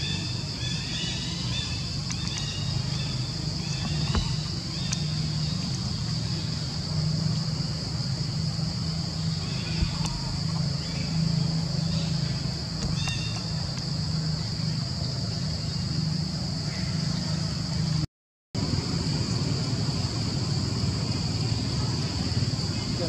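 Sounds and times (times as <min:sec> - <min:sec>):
high-pitched insect drone: 0:00.0 - 0:18.0
low steady hum: 0:00.0 - 0:18.0, 0:18.6 - 0:23.0.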